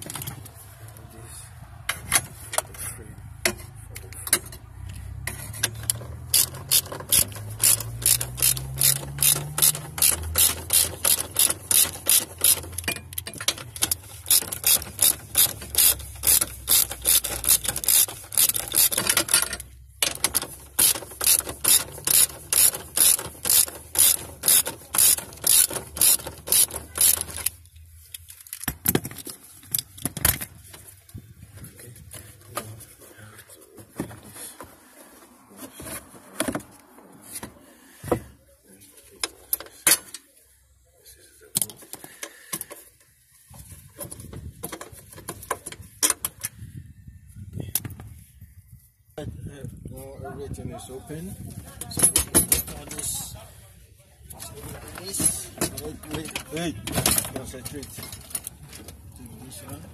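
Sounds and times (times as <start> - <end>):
ratchet wrench clicking: 5.3 - 27.6.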